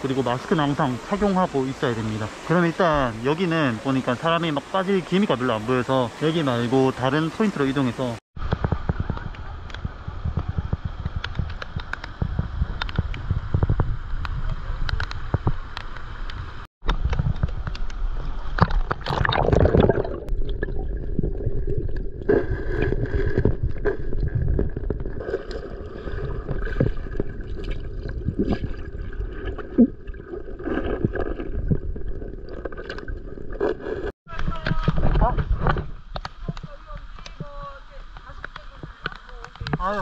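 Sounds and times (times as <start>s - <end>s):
clicks underwater: 8.4s - 40.0s
water splashing: 14.4s - 40.0s.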